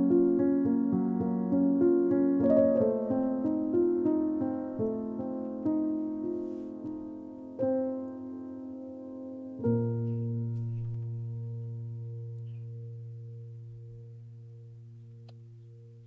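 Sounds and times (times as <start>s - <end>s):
slow soft piano chords: 0.0s - 16.0s.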